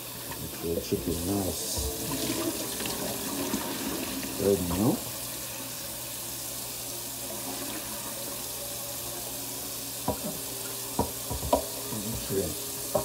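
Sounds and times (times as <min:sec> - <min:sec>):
tap running into sink: 0:01.0 - 0:04.8, 0:10.0 - 0:13.0
water splashes and bowl knocks: 0:10.0 - 0:10.4, 0:11.0 - 0:12.3.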